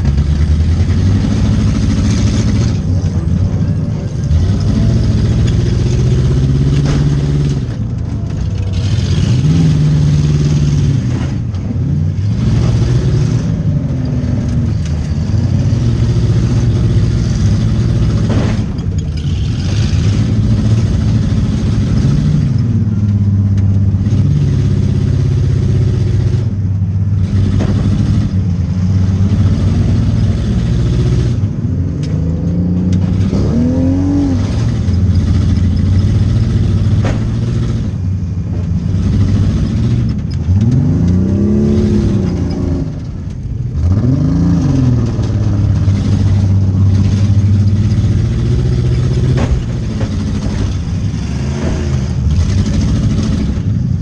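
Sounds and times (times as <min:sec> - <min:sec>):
car engine revving: 0:00.0 - 0:54.0
sharp knocks: 0:37.0 - 0:37.6, 0:49.0 - 0:52.1.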